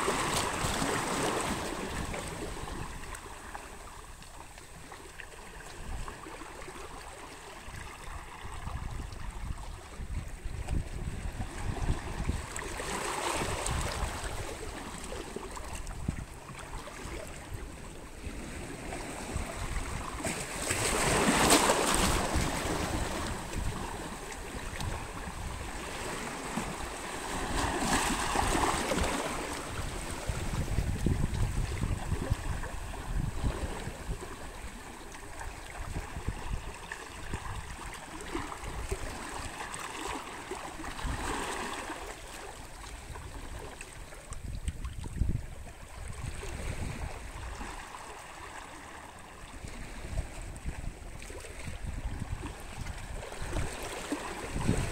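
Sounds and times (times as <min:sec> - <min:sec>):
waves splashing on rocks: 0:20.3 - 0:30.5.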